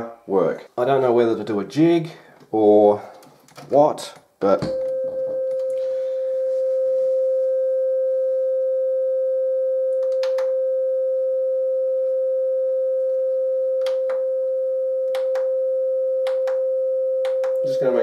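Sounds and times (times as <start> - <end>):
sine-wave test tone: 4.6 - 18.0.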